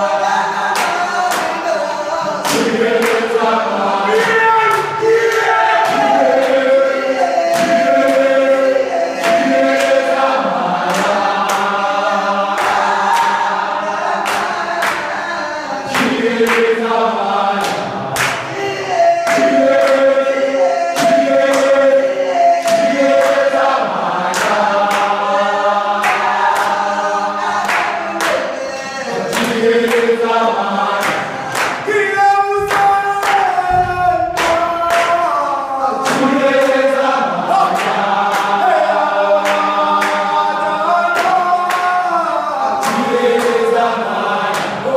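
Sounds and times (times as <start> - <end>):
voices singing in harmony: 0.0 - 44.9.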